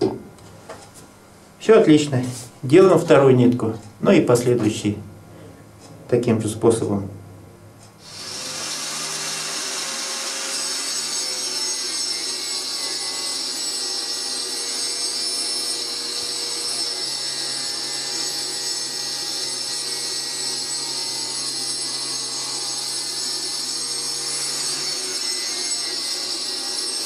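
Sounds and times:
motor hum: 7.2 - 20.0
disc cutter cutting wood: 8.0 - 27.0.

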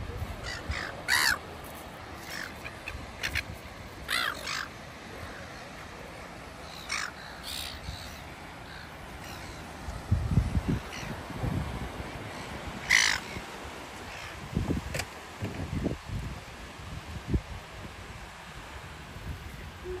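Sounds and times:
gulls calling: 0.1 - 9.9, 12.2 - 14.4.

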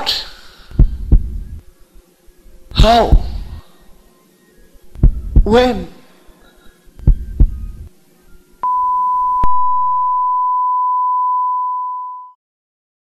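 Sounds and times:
low hum: 0.7 - 5.8, 6.6 - 10.5
heartbeat thump: 0.8 - 1.6, 2.8 - 3.6, 5.0 - 5.6, 7.0 - 7.9
heart monitor flatline tone: 0.8 - 1.7, 5.0 - 5.6, 7.0 - 7.9, 8.6 - 12.3.

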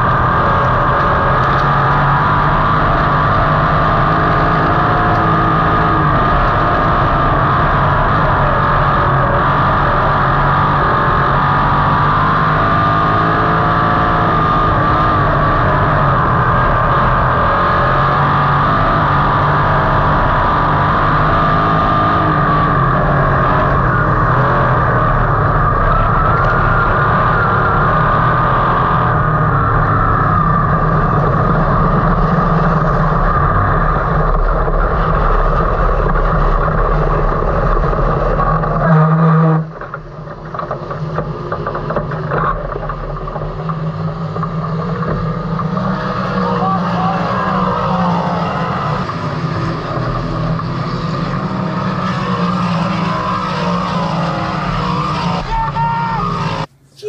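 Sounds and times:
race car engine running: 0.0 - 57.0.

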